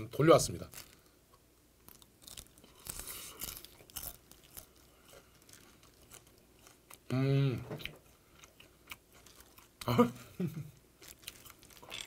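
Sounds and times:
crunchy chewing: 1.8 - 7.1, 7.8 - 9.9, 11.0 - 12.0.

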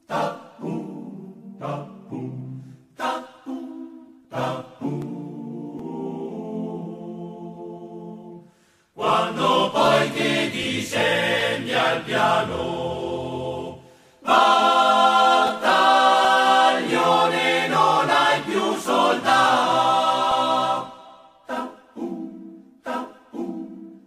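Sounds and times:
choir singing a slow song: 0.0 - 24.0.

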